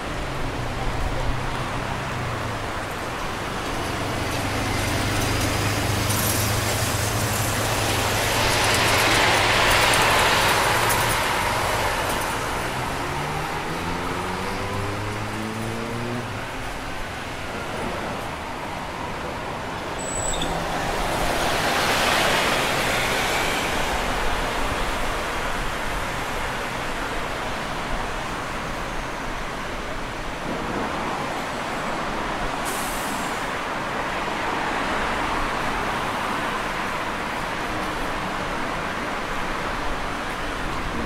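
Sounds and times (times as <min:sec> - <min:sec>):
road traffic passing: 0:00.0 - 0:41.0
vehicle passing close: 0:04.4 - 0:16.4
brief high hiss: 0:32.6 - 0:33.5.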